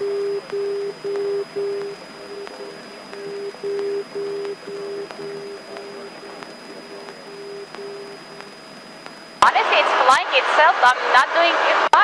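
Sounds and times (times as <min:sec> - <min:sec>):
low electronic tone beeping: 0:00.0 - 0:09.4.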